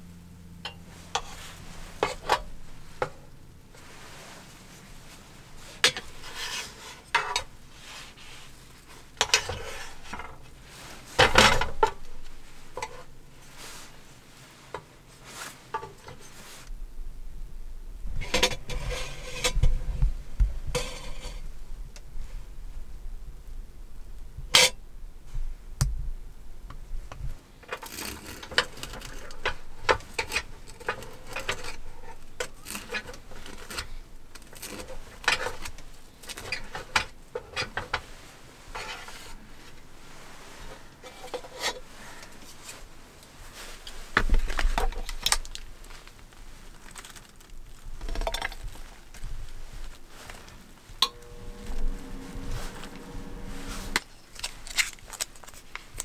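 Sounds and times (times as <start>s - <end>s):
spatula scraping hot plate: 5.7s - 8.5s, 18.2s - 19.7s, 20.7s - 21.4s, 38.7s - 39.4s, 51.0s - 54.6s.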